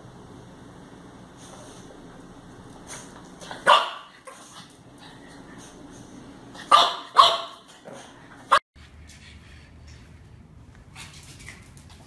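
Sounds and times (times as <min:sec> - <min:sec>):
dog barking: 0:03.6 - 0:04.2, 0:06.6 - 0:07.7.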